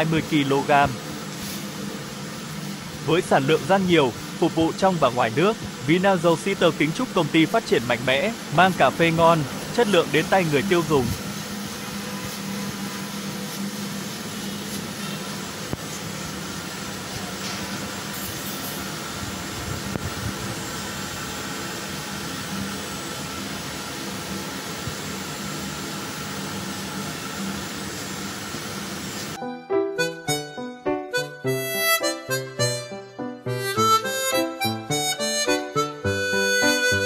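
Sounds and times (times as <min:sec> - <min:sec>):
coffee roaster running: 0:00.0 - 0:29.4
music: 0:29.4 - 0:37.0.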